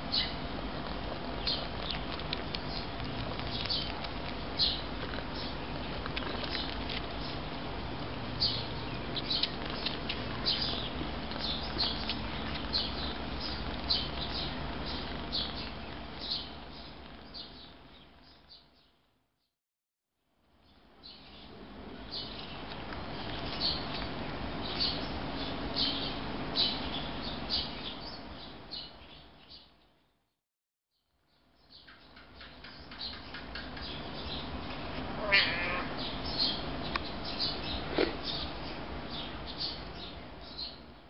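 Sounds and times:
small birds chirping: 0.0 - 19.2, 20.6 - 30.2, 31.3 - 41.0
cat meowing: 35.1 - 36.0.

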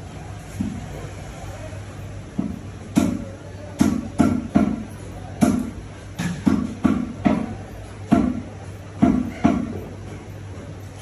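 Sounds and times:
cleaver chopping on wooden block: 3.8 - 4.8, 5.4 - 7.5.

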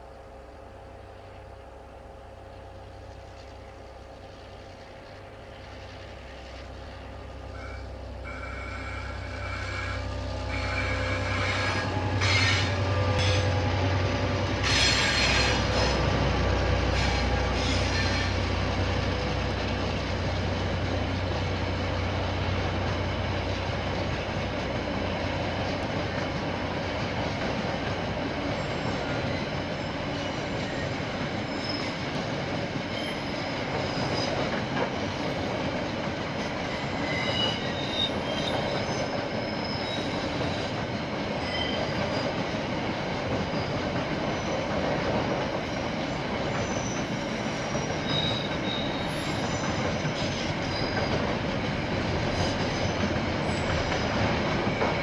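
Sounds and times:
diesel train rumble: 0.0 - 55.0
rail clicks and clatter: 2.9 - 55.0
wheel squeal: 7.6 - 13.6, 16.9 - 18.5, 28.5 - 32.1, 36.6 - 40.8, 41.4 - 42.6, 43.5 - 44.8, 45.6 - 51.4.

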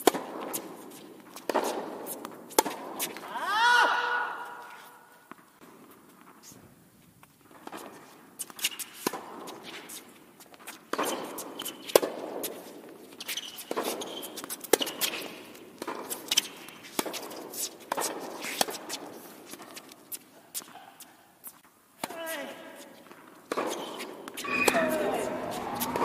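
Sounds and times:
tennis ball bouncing: 0.0 - 3.2, 10.6 - 12.6, 13.6 - 19.0
footsteps on court: 0.0 - 3.3, 4.6 - 26.0
racquets striking tennis ball: 0.0 - 3.3, 7.4 - 20.8, 23.0 - 26.0
shoe squeaks: 7.8 - 9.0, 9.6 - 12.0, 13.1 - 15.4, 23.6 - 26.0.

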